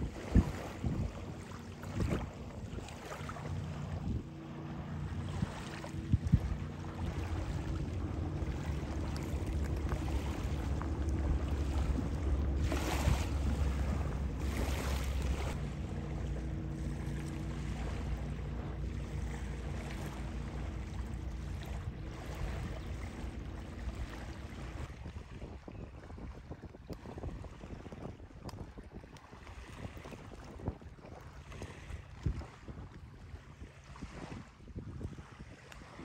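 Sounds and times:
low hum: 0.0s - 26.4s
wind buffeting microphone: 0.0s - 36.0s.

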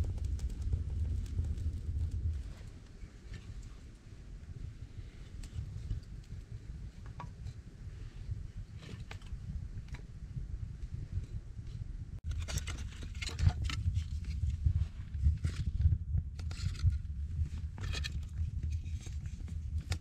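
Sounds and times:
wood fire crackling: 0.0s - 10.1s
steady low rumble: 0.0s - 20.0s.

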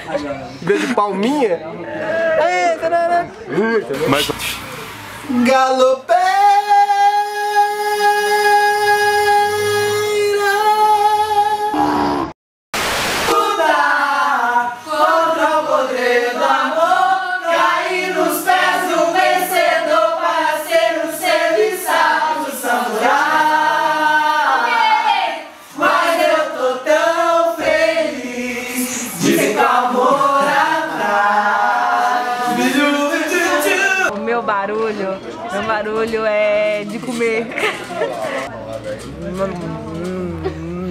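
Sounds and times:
group singing and chanting: 13.0s - 34.4s.

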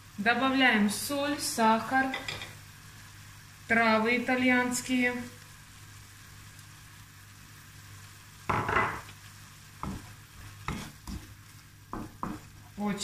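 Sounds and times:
sauce sizzling in a frying pan: 0.0s - 13.0s
spatula knocking against pan: 8.5s - 9.0s, 11.9s - 12.5s
spatula scraping a pan: 9.8s - 11.6s.

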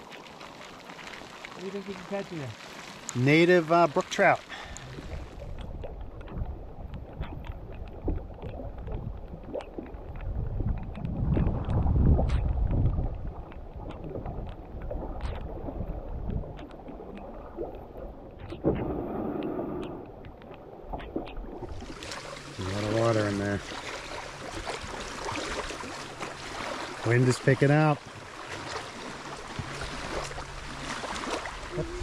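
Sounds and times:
water splashing against canoe: 0.0s - 32.0s
wind buffeting microphone: 4.8s - 16.6s.

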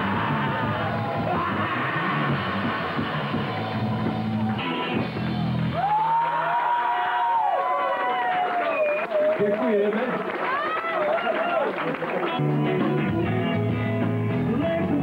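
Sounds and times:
live rock band playing: 0.0s - 5.9s, 12.2s - 15.0s.

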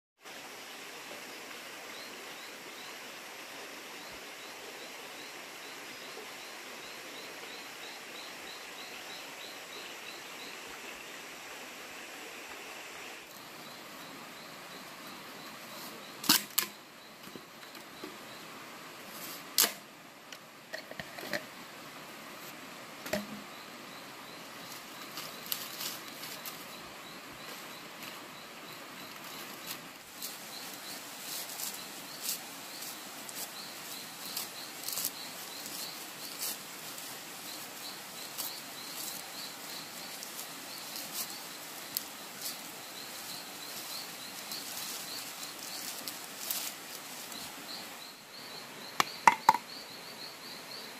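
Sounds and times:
dry plant fibre crackling: 38.2s - 47.6s
sharp knocks: 49.0s - 49.7s.

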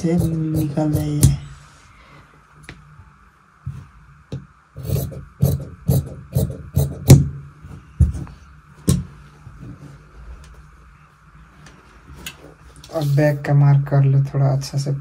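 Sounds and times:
shears snipping fabric: 0.0s - 1.4s.

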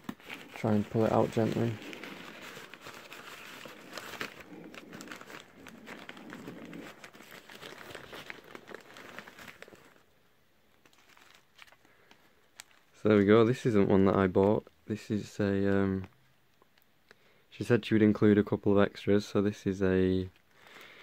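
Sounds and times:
newspaper crumpling and crinkling: 0.0s - 10.1s, 10.7s - 16.1s.

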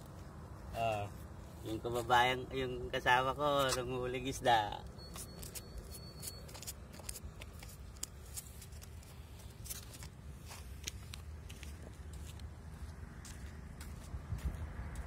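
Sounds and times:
camera handling clicks and rustling: 5.1s - 10.2s.

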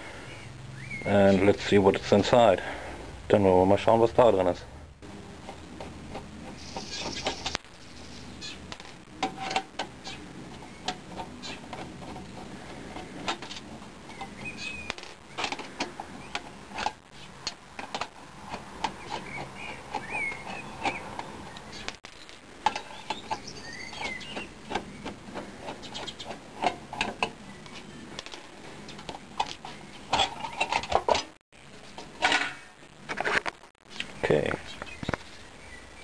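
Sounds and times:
metal shield rattling: 22.6s - 31.4s, 32.0s - 33.4s.

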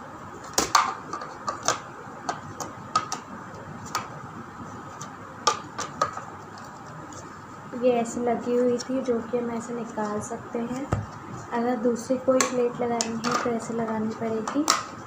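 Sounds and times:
plastic clicks and clacks: 0.6s - 3.2s.

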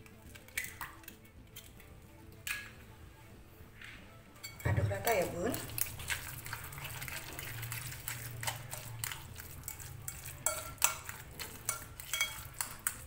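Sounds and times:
fork stirring mashed food: 0.0s - 1.9s, 5.2s - 13.0s
fork clinking against glass bowl: 4.4s - 4.7s, 7.4s - 13.0s.

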